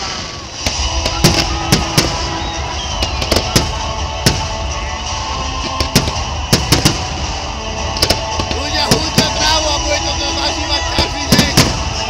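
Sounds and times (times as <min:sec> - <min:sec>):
firework shells bursting: 0:00.0 - 0:09.6
background music: 0:00.0 - 0:12.0.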